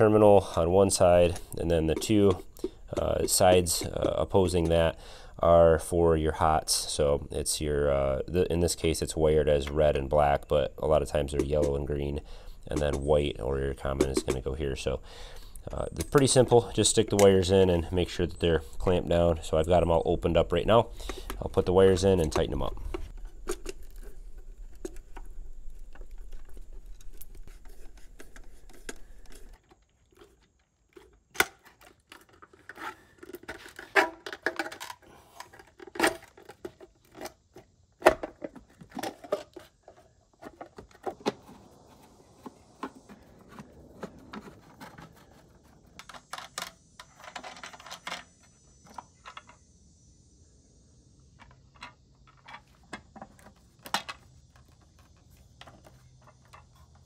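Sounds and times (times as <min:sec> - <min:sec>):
plastic parts clicking and rattling: 0:20.5 - 0:41.6, 0:42.4 - 0:49.6, 0:51.4 - 0:57.0.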